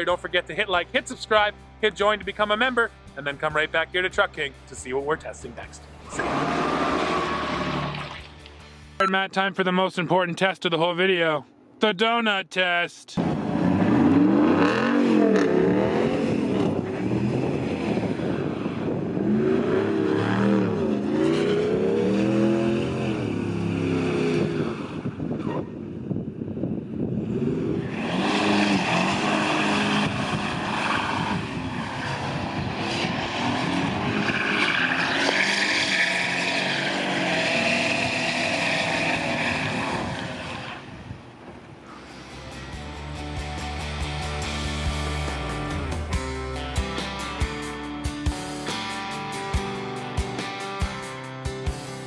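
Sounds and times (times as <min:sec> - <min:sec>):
truck engine revving: 0:05.8 - 0:08.6, 0:13.2 - 0:25.4, 0:27.2 - 0:40.9, 0:41.9 - 0:52.0.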